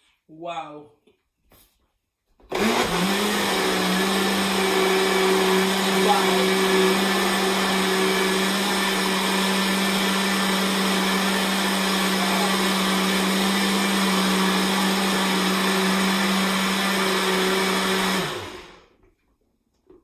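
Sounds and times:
blender running: 0:02.5 - 0:19.0.

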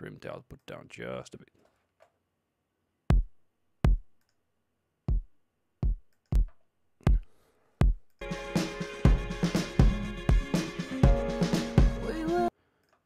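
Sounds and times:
dense music mix: 0:08.2 - 0:12.5.

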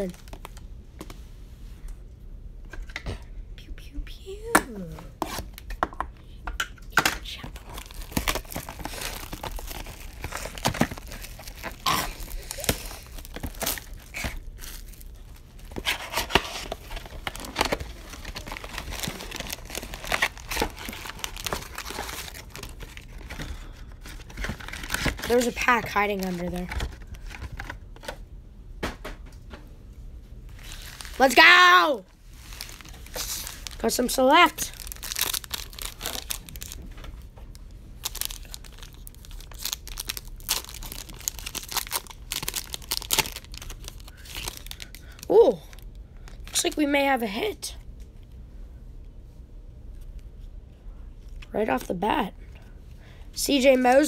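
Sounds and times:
plastic packaging tearing and crinkling: 0:07.4 - 0:28.2, 0:30.5 - 0:46.8.

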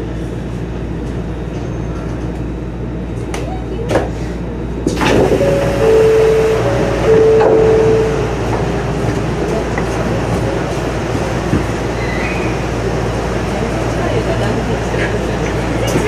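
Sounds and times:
two-note signal tone: 0:05.4 - 0:08.5.

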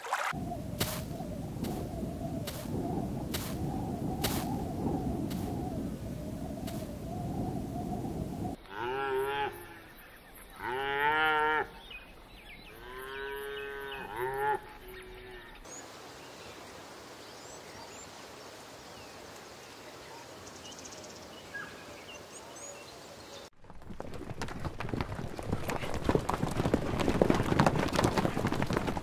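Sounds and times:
cow mooing: 0:08.6 - 0:09.8, 0:10.6 - 0:11.8, 0:12.7 - 0:15.5.

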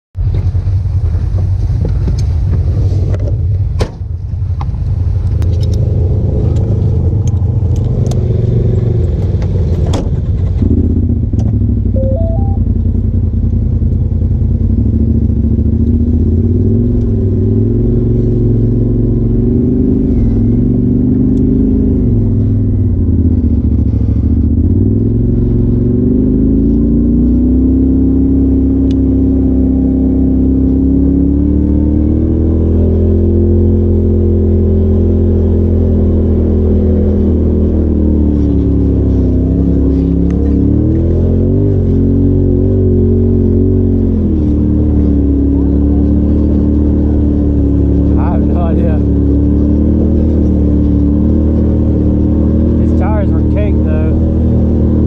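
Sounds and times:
off-road vehicle engine running: 0:00.2 - 0:55.0
three-note rising beep: 0:11.9 - 0:13.0.

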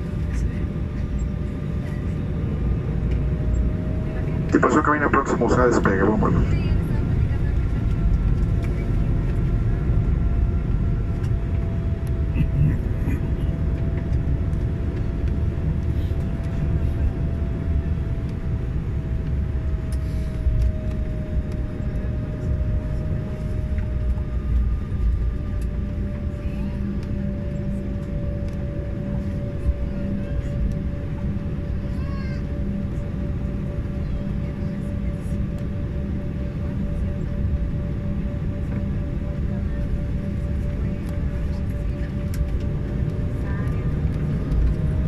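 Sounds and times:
jet engine rumble and whine: 0:00.0 - 0:45.0.

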